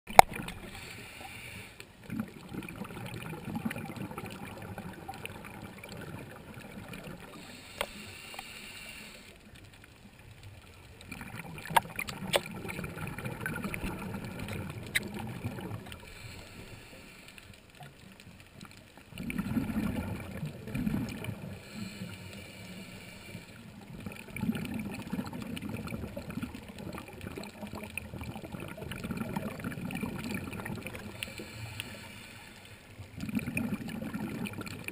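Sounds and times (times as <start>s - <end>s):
exhaled bubbles gushing: 0.1s - 0.8s, 2.0s - 7.6s, 10.9s - 16.1s, 19.1s - 21.8s, 23.6s - 31.6s, 33.0s - 34.9s
regulator inhale hiss: 0.6s - 2.0s, 7.3s - 9.5s, 16.0s - 17.7s, 21.6s - 23.8s, 31.0s - 33.0s.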